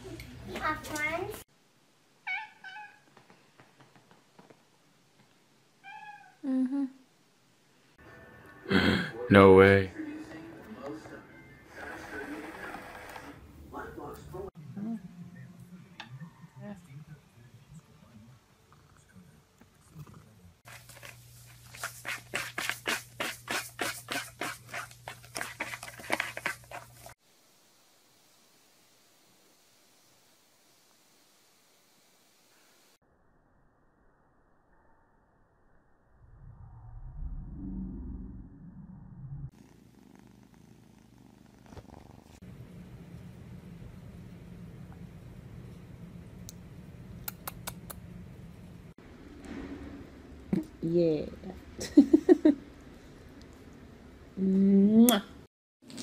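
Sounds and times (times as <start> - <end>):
cat meowing: 2.2 - 3.1, 5.8 - 6.4
cat scraping cardboard scratcher: 20.8 - 27.2
low steady hum: 42.5 - 54.7.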